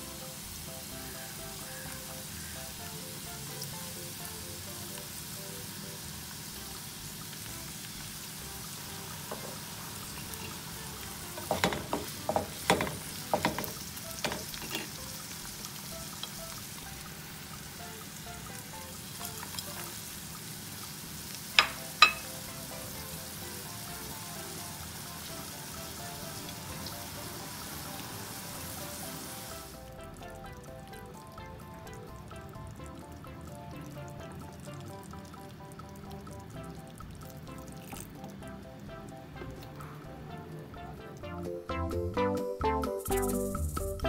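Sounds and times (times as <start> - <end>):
vegetables sizzling in pan: 0.0 - 29.9.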